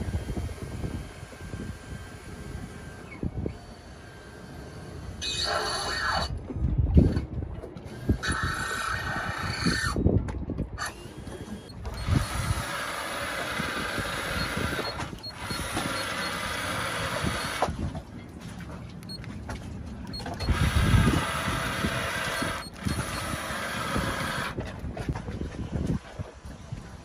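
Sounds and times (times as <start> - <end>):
wind buffeting microphone: 0.0 - 5.2, 6.2 - 18.8, 19.4 - 27.0
mechanical running noise: 10.8 - 17.8, 20.1 - 24.6.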